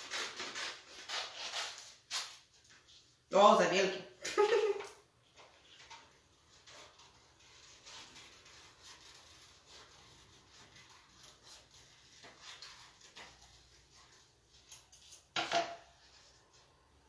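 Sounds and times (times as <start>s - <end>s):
scissors cutting paper: 0.0s - 2.8s, 5.7s - 15.4s.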